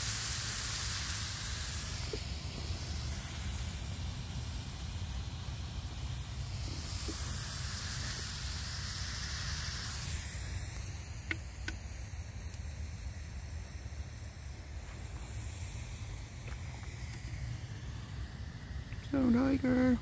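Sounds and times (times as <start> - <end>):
sausages sizzling in a pan: 0.0 - 20.0
sharp pops: 6.6 - 12.7.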